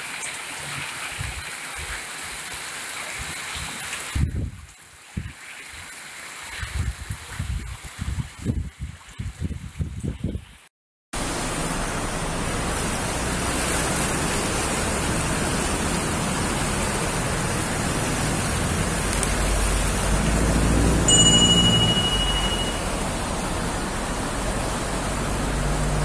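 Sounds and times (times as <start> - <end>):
floodwater and rain rushing: 0.0 - 26.0
high electronic tone: 21.0 - 23.2.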